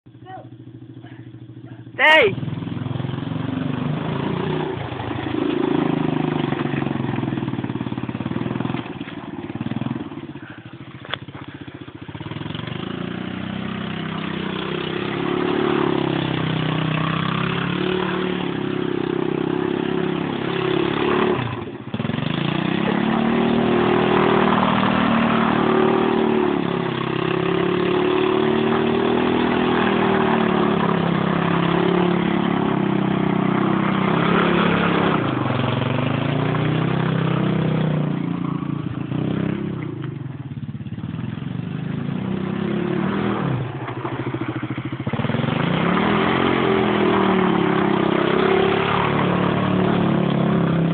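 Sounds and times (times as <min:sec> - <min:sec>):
atv engine revving: 0:00.1 - 0:50.9.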